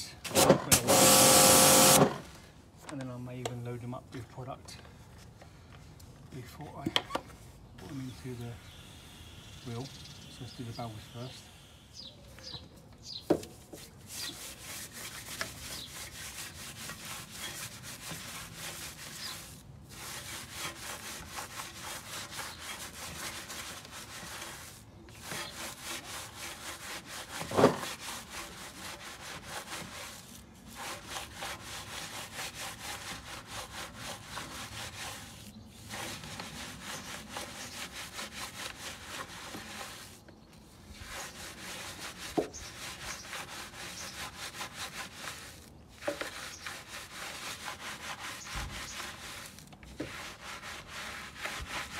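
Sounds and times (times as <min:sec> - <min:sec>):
brush scrubbing a wheel: 0:00.7 - 0:02.0, 0:13.4 - 0:51.9.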